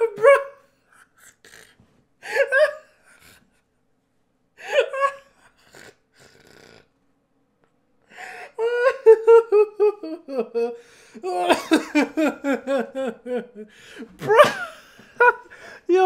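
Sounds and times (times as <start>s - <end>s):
man laughing hard: 2.2s - 3.1s, 4.6s - 5.9s, 8.4s - 16.0s.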